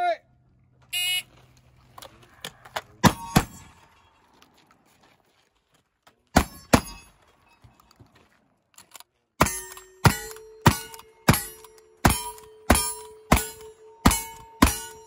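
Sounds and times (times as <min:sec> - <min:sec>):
steel target ringing: 0:03.0 - 0:04.1, 0:06.4 - 0:07.2, 0:09.4 - 0:15.0
shotgun shots: 0:06.4 - 0:07.0.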